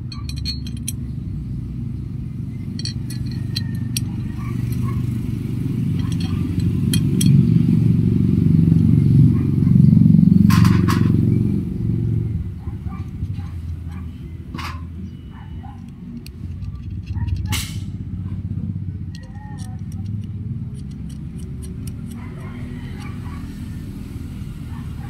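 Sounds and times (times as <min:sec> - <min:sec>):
metal rattle: 0:00.0 - 0:01.3, 0:02.5 - 0:08.0, 0:10.5 - 0:11.2, 0:12.9 - 0:18.4, 0:19.0 - 0:24.2
metal bolts clicking and scraping: 0:00.0 - 0:01.6, 0:02.4 - 0:08.1, 0:10.5 - 0:11.4, 0:12.4 - 0:25.0
steady low rumble: 0:00.0 - 0:25.0.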